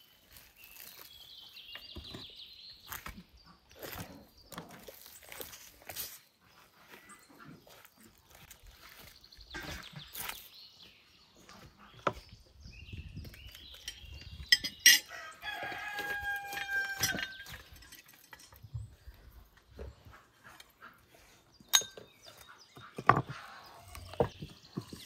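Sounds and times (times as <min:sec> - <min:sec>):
rooster crowing: 0:15.1 - 0:17.4.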